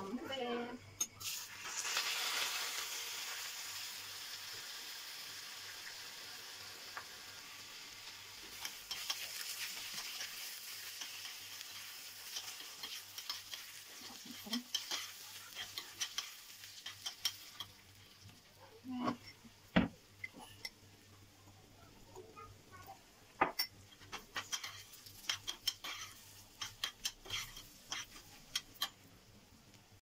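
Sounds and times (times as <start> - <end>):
rice sizzling in hot oil: 0.4 - 21.5, 23.6 - 30.0
metal spoon scraping a pot: 8.5 - 18.1, 23.6 - 29.0.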